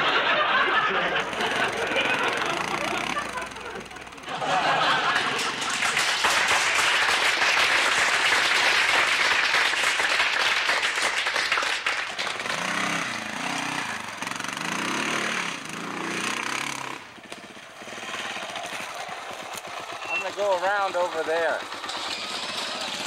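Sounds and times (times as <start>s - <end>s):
dirt bike engine revving: 0.0s - 5.7s, 11.8s - 23.0s.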